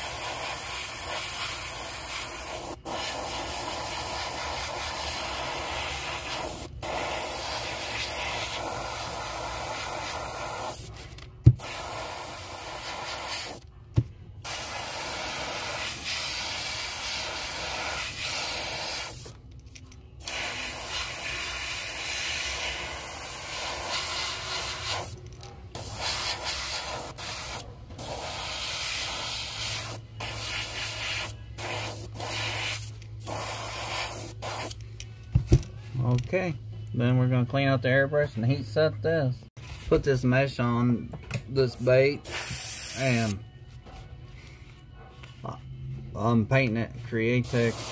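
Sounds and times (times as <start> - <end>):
airbrush spraying hiss: 0.0 - 10.9, 11.6 - 13.6, 14.4 - 19.3, 20.2 - 25.2, 25.8 - 34.8, 42.2 - 43.4, 47.4 - 47.9.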